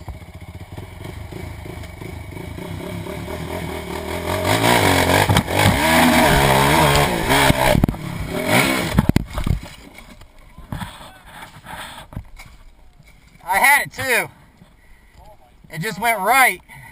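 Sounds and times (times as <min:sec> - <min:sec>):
quad engine revving: 0:00.0 - 0:09.2.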